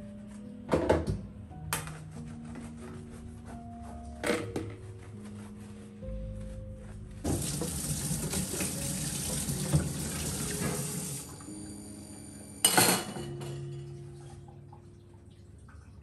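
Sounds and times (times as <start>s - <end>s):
tap running into metal sink: 7.3s - 11.2s.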